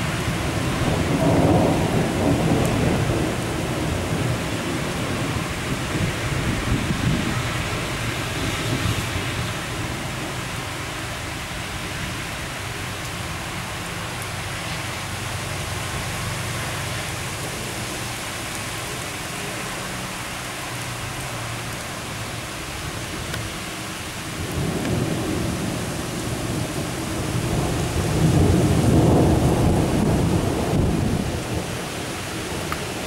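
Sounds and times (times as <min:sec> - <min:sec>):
steady rain hiss: 0:00.0 - 0:33.0
thunder rolling: 0:24.4 - 0:31.8.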